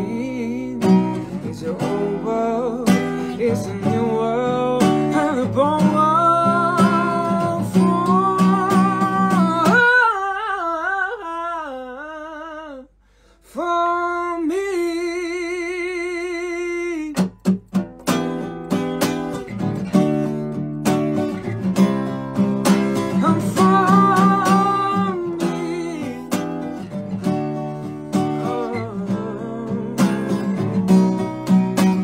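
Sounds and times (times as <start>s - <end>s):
acoustic guitar strumming: 0.0s - 11.7s, 13.9s - 32.0s
man singing with vibrato: 0.0s - 17.4s, 22.6s - 26.9s, 27.8s - 31.5s.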